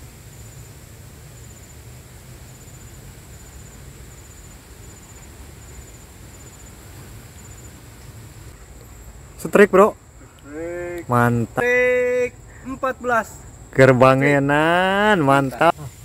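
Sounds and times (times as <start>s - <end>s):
high insect trill: 0.0s - 16.0s
low outdoor rumble: 0.0s - 16.0s.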